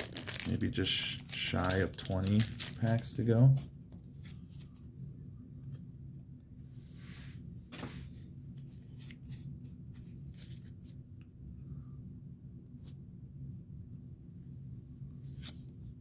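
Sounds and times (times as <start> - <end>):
packet rustle: 0.0 - 3.2
low steady hum: 0.0 - 16.0.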